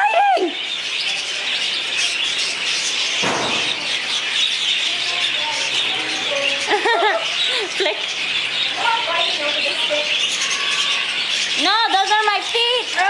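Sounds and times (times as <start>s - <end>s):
budgerigars chattering and chirping: 0.4s - 13.0s.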